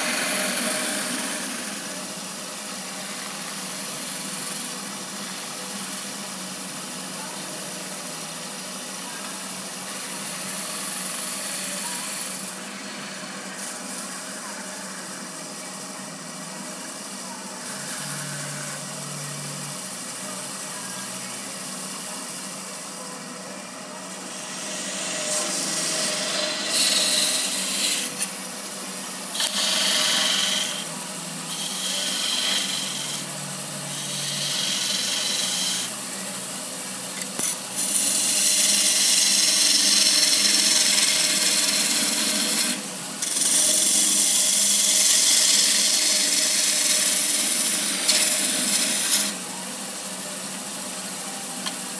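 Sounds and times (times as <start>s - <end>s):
wood lathe tool scraping wood: 0.0s - 5.4s, 9.7s - 14.1s, 17.6s - 18.9s, 24.3s - 35.9s, 37.3s - 49.4s.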